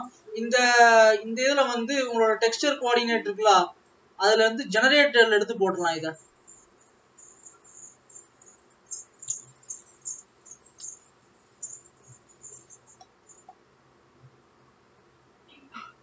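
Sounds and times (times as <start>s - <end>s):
crickets chirping: 4.5s - 13.6s.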